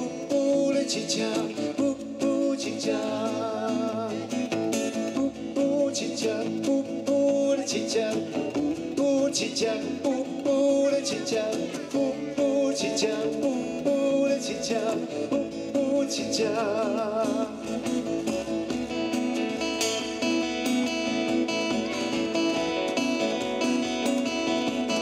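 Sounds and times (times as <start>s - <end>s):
man singing: 0.0s - 18.7s
acoustic guitar strumming: 0.0s - 25.0s.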